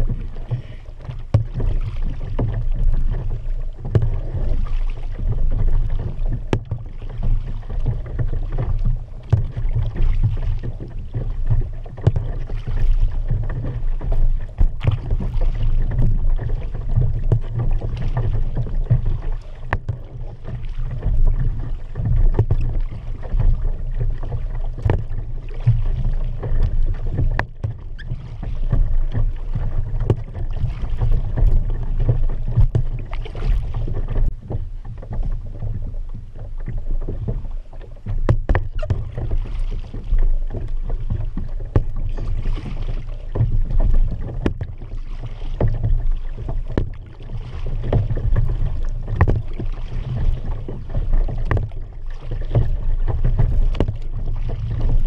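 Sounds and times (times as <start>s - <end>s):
paddle splashing in water: 0.0s - 55.0s.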